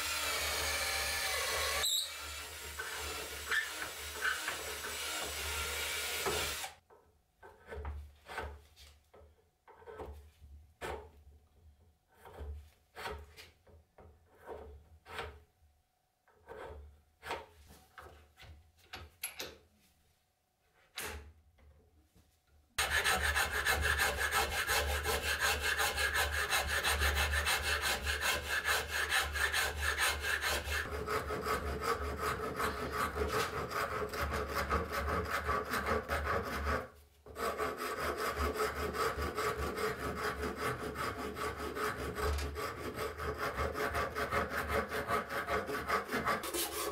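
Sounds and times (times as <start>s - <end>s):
file rasping wood: 0.0s - 6.8s, 7.4s - 8.7s, 9.7s - 10.2s, 12.1s - 15.4s, 16.3s - 17.5s, 22.8s - 46.9s
hacksaw cutting wood: 0.0s - 6.8s, 7.4s - 8.7s, 12.1s - 13.5s, 14.3s - 15.4s, 22.8s - 46.9s
rasp scraping wood: 7.4s - 8.9s, 12.1s - 15.4s, 16.3s - 18.1s, 22.8s - 46.9s.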